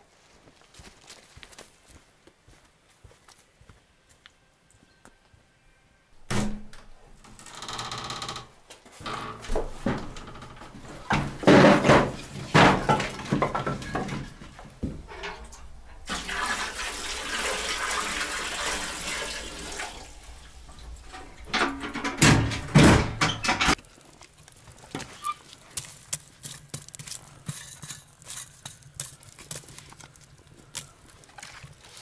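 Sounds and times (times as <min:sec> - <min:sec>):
knocks and clattering: 0:06.3 - 0:16.4, 0:20.7 - 0:23.8
water pouring: 0:12.0 - 0:22.2, 0:31.2 - 0:32.0.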